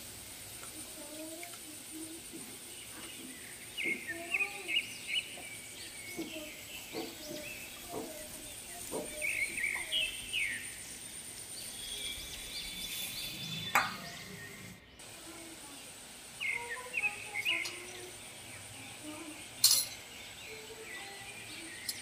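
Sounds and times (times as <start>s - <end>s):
small birds chirping: 0.3s - 22.0s
thin high whine: 9.3s - 20.0s.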